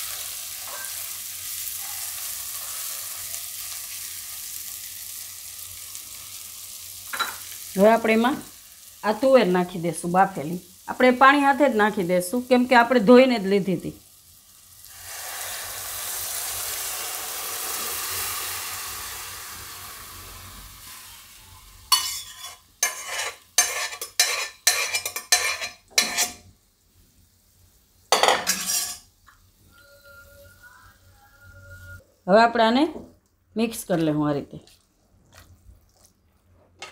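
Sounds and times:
peas sizzling in hot oil: 0:00.0 - 0:30.1
spatula scraping pan: 0:21.9 - 0:26.4, 0:28.4 - 0:29.0.

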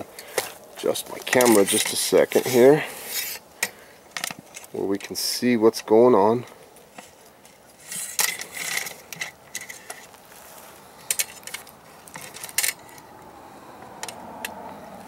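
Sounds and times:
rustling: 0:06.7 - 0:13.0
light metallic rattles: 0:11.0 - 0:13.2.

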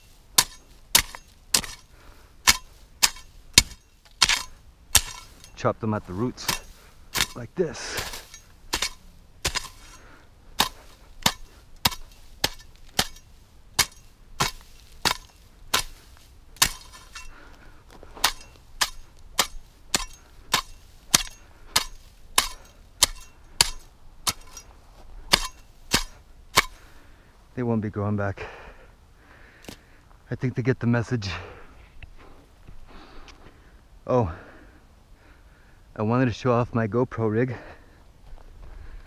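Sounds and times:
machete chopping into dirt: 0:00.0 - 0:05.6, 0:06.3 - 0:10.0, 0:10.6 - 0:17.3, 0:18.2 - 0:24.7, 0:25.3 - 0:26.8.

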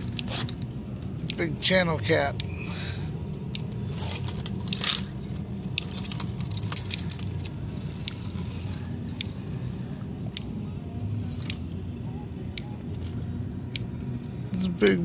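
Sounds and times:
steady low hum: 0:00.0 - 0:15.0
metal chain and hooks clinking: 0:03.8 - 0:09.2.

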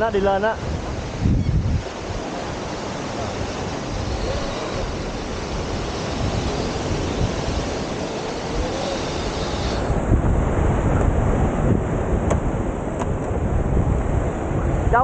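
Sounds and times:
surf washing onto beach: 0:00.0 - 0:15.0
wind buffeting microphone: 0:00.0 - 0:15.0.

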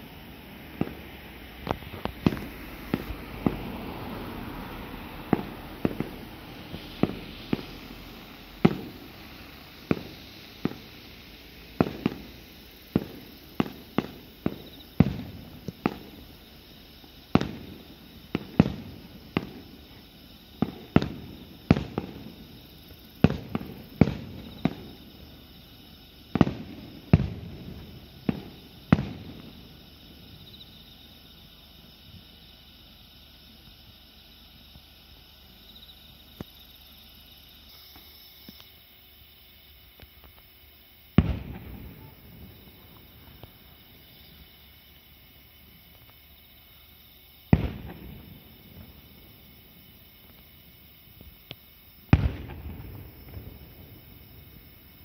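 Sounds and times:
distant firework booms echoing: 0:00.0 - 0:16.4, 0:17.2 - 0:19.8, 0:20.5 - 0:25.5, 0:26.2 - 0:30.5, 0:41.2 - 0:44.5, 0:47.4 - 0:50.5, 0:52.0 - 0:55.0.

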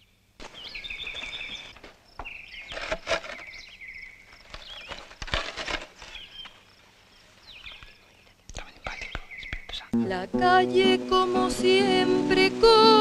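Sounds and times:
birds chirping and trilling: 0:00.0 - 0:05.2, 0:06.0 - 0:10.0.

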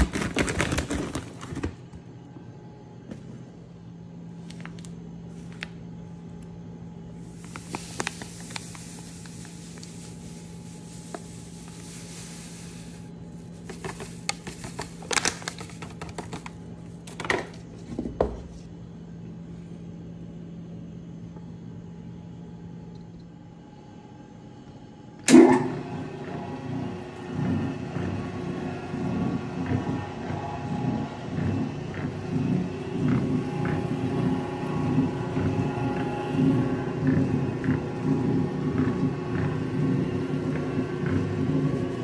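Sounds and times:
dry yeast pouring: 0:07.2 - 0:16.6
stand mixer motor clunk: 0:25.3 - 0:25.8.

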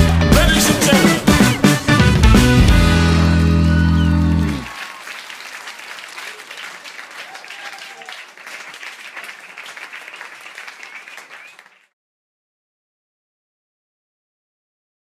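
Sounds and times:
audience applauding: 0:00.0 - 0:11.9.

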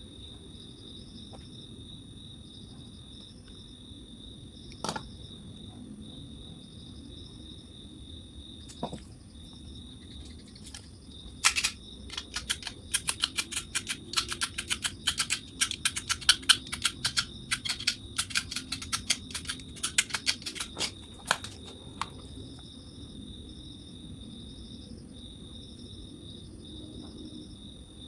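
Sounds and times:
crickets chirping: 0:00.0 - 0:28.0
blade scraping copper wire: 0:11.5 - 0:22.2.

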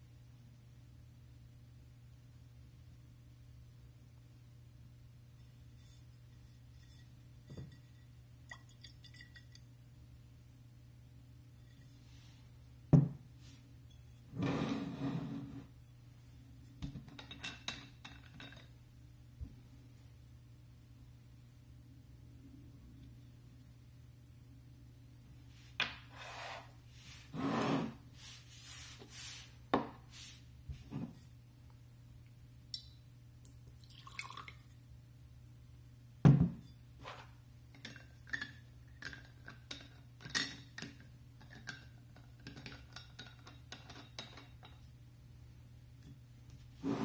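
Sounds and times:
liquid pouring into glass: 0:33.8 - 0:34.7.

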